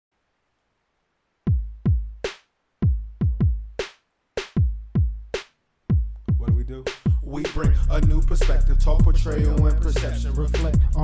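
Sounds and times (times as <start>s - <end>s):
deep kick drums: 2.8s - 3.8s, 5.9s - 11.0s.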